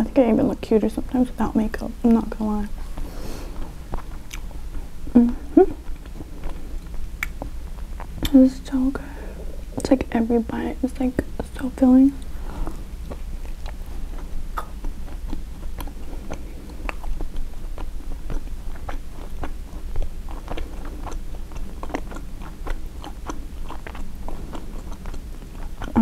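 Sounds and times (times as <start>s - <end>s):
chewing mouth clicks: 3.6s - 4.9s, 5.6s - 8.4s, 12.2s - 26.0s.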